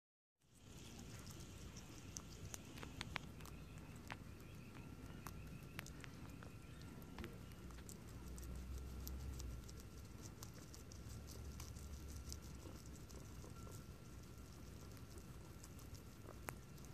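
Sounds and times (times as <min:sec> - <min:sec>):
guinea pigs chewing leaves: 0:00.5 - 0:16.9
faint steady high tone: 0:13.3 - 0:16.0.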